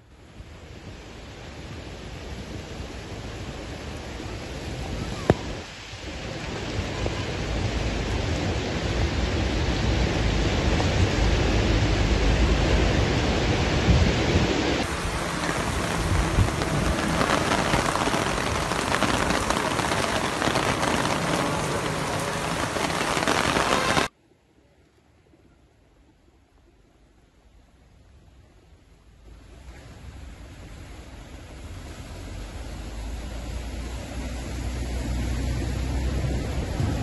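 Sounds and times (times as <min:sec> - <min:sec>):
floodwater rushing through street: 0:00.0 - 0:24.1, 0:29.1 - 0:37.0
heavy rain: 0:00.0 - 0:24.1.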